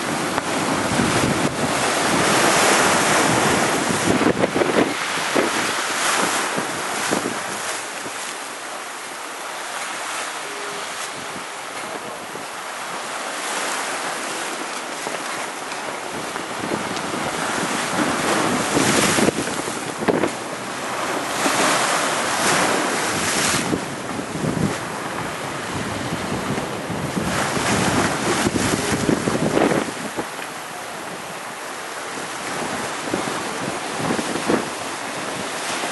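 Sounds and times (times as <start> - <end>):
wind buffeting microphone: 0.0 - 8.3, 10.8 - 31.5, 32.1 - 35.9
surf breaking over rocks: 0.0 - 35.9.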